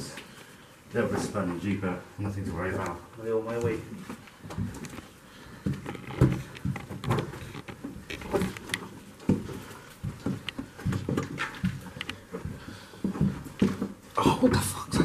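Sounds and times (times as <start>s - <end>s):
footsteps on soft stairs: 2.5s - 15.0s
scuffs and small clicks: 2.8s - 14.1s.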